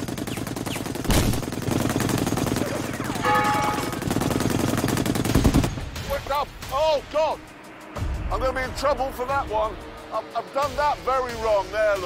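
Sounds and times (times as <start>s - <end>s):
heavy machine gun firing: 0.0s - 6.0s.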